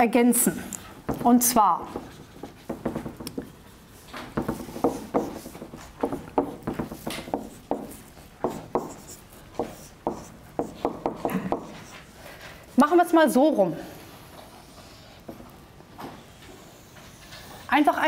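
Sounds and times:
marker squeaking on whiteboard: 1.1s - 12.1s.

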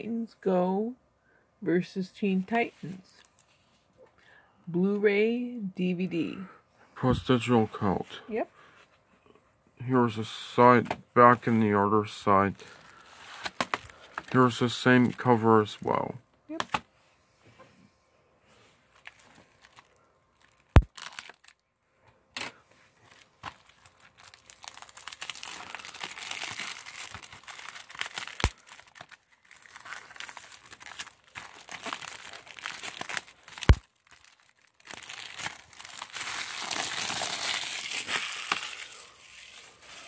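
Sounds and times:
plastic wrap crinkling: 12.5s - 15.4s, 18.9s - 21.7s, 22.4s - 40.0s.

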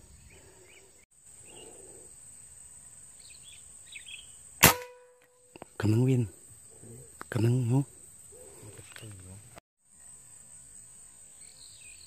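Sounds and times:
high insect drone: 0.0s - 4.6s, 5.2s - 12.0s
air rifle shot: 4.6s - 5.2s.

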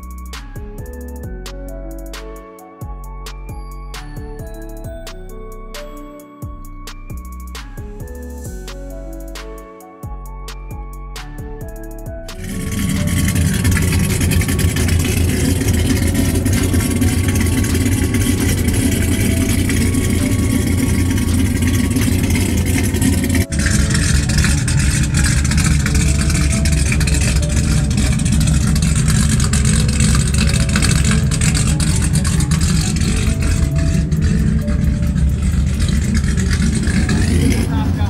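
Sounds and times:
faint music melody: 0.0s - 38.0s
deep exhaust rumble: 12.2s - 38.0s.

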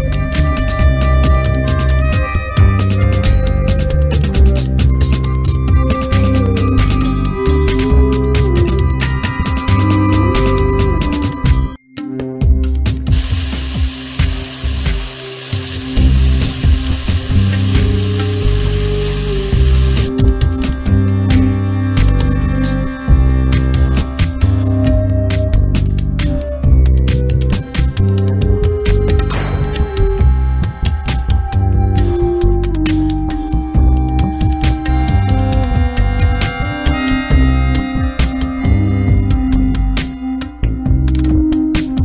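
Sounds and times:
electronic music with fast beat: 12.9s - 42.0s
chicken sizzling in hot oil: 13.1s - 20.1s.

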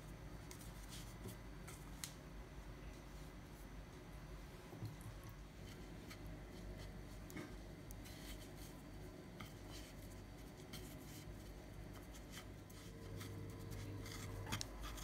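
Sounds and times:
steady low hum: 0.0s - 15.0s
chopsticks scratching and ticking: 4.8s - 15.0s.

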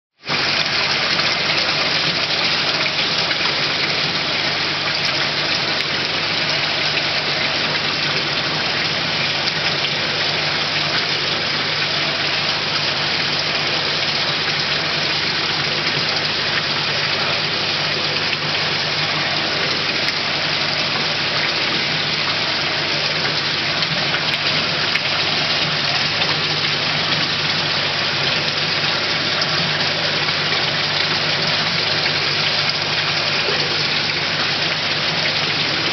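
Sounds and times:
aerated water bubbling: 0.2s - 35.9s
pump humming: 0.2s - 35.9s.

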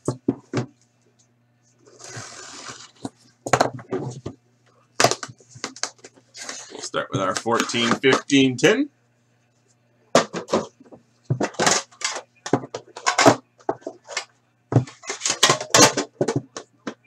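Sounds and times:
low steady hum: 0.0s - 17.0s
tin opening scrape: 1.9s - 3.1s.

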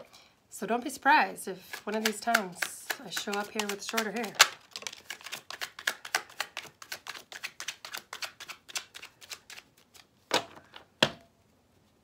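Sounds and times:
cards being shuffled: 1.6s - 10.6s
cards tapped: 1.7s - 9.5s.

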